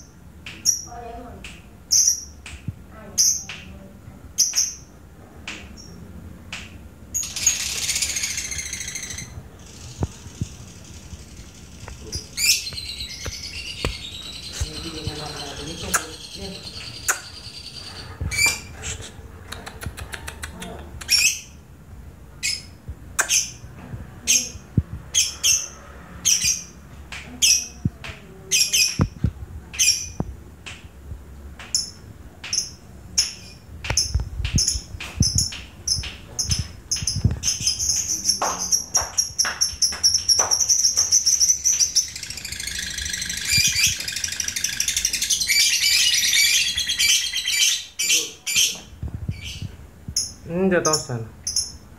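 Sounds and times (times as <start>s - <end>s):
lovebird chirping: 0.0s - 1.2s, 7.1s - 20.2s, 21.0s - 21.6s, 22.4s - 26.8s, 31.7s - 51.9s.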